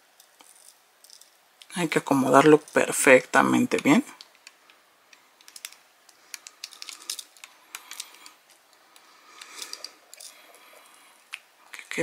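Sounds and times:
plastic parts clicking into place: 4.2s - 10.3s.

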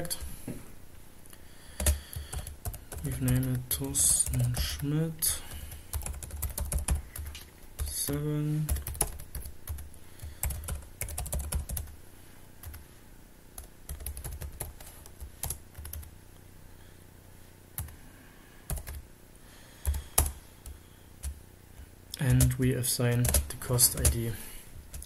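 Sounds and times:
typing on a keyboard: 5.9s - 7.5s, 8.7s - 9.8s, 10.4s - 11.9s, 13.9s - 16.1s.

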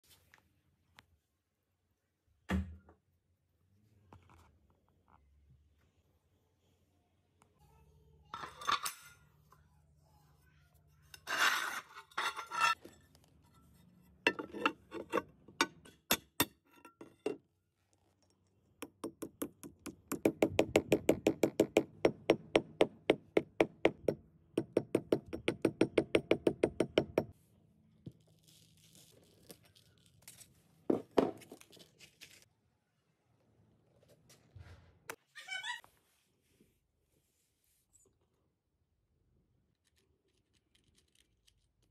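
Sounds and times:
hammer tapping ceramic tile: 18.8s - 27.3s.

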